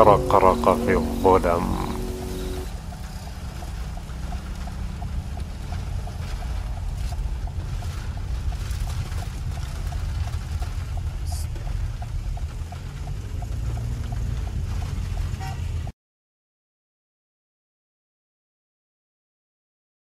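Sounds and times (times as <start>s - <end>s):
faint regular ticking: 0.0s - 15.0s
rain and water noise: 0.0s - 15.9s.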